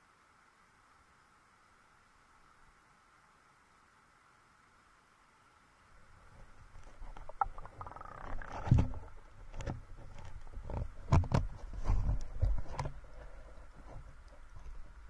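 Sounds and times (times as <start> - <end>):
water sloshing and splashing: 6.4 - 14.9.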